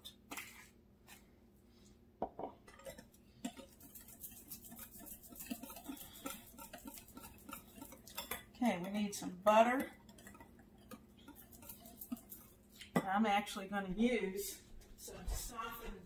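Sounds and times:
whisk clinking against glass bowl: 0:03.5 - 0:08.9, 0:09.7 - 0:12.6.

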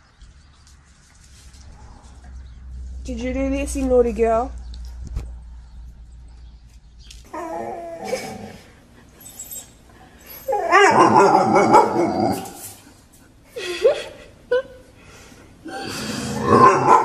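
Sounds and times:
dog whining: 0:07.3 - 0:12.8.

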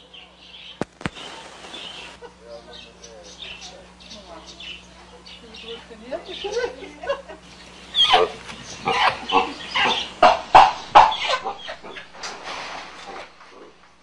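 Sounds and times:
animal squealing and shrieking: 0:07.8 - 0:12.1.

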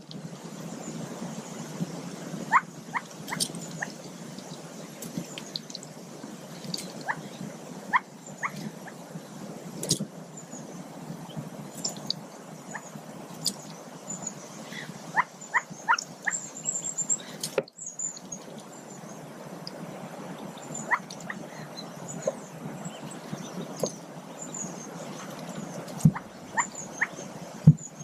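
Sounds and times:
steady outdoor hiss: 0:00.0 - 0:28.0
ducklings peeping: 0:02.5 - 0:05.8, 0:11.2 - 0:18.6, 0:20.5 - 0:27.8.

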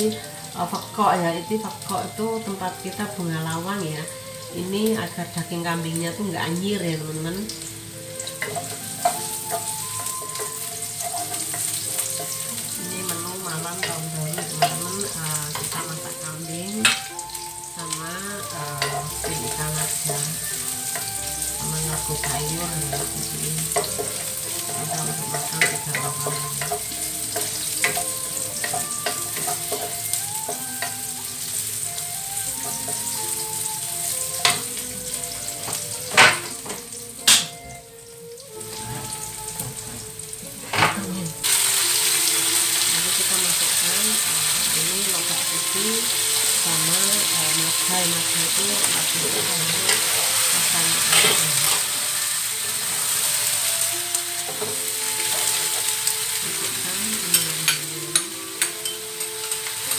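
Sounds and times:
food sizzling in oil: 0:00.0 - 0:59.9.

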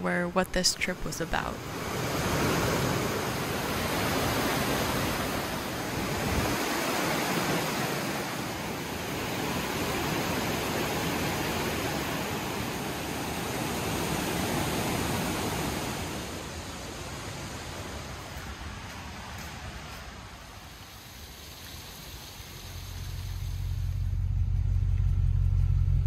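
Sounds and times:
waterfall rushing: 0:01.6 - 0:18.1.

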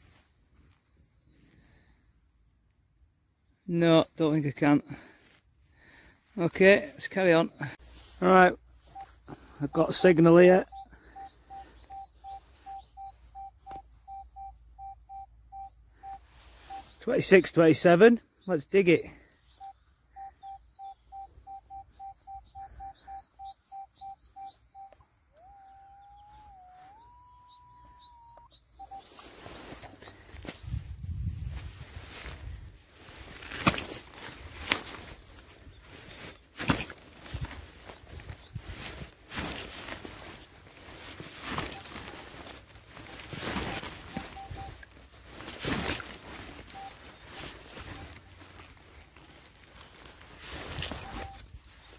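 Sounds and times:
metal detector short beeps: 0:08.9 - 0:17.6, 0:18.5 - 0:25.0, 0:27.0 - 0:31.1, 0:36.7 - 0:39.8, 0:41.5 - 0:48.4, 0:50.6 - 0:51.8
faint bird chirps: 0:08.9 - 0:31.2, 0:43.4 - 0:48.4.

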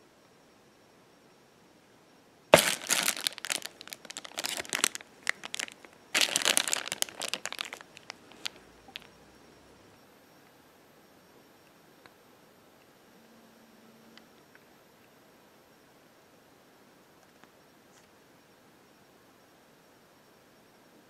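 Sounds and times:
plastic bags crinkling: 0:02.6 - 0:09.1.

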